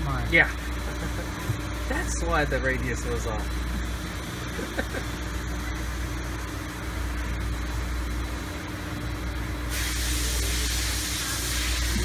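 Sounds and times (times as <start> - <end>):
low machine hum: 0.0 - 12.0
steady hiss: 9.7 - 12.0.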